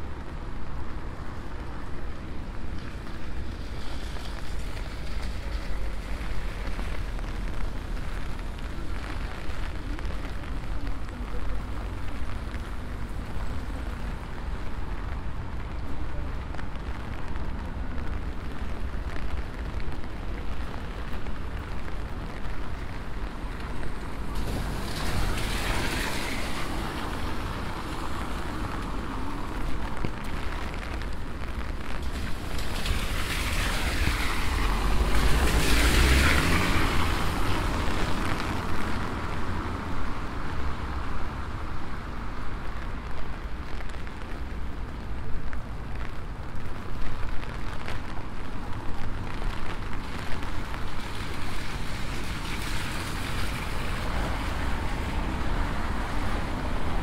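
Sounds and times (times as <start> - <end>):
rain on wet street: 0.0 - 57.0
vehicle passing with low rumble: 22.2 - 44.4.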